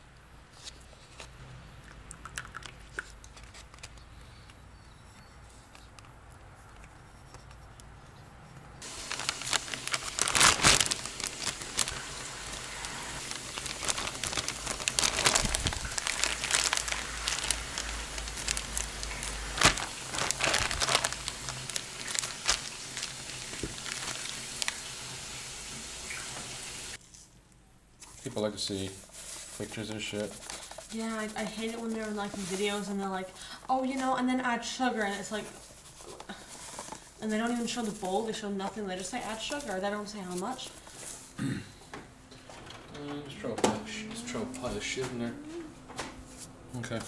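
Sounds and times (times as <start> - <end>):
plastic bag crinkling: 8.8 - 25.4, 28.2 - 34.2, 35.0 - 41.4.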